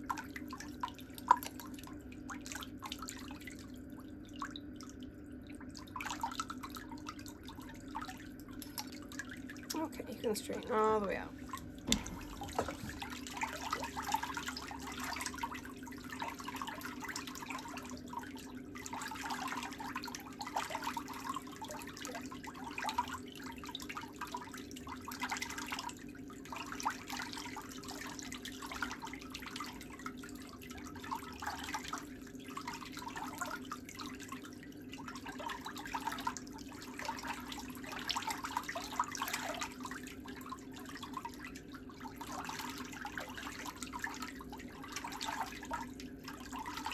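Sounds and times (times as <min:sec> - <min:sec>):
steady low hum: 0:00.0 - 0:20.2.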